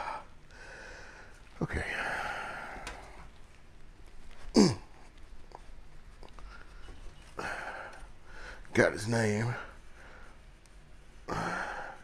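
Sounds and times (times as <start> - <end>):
man breathing hard: 0.0 - 3.3, 6.4 - 8.7, 11.2 - 12.0.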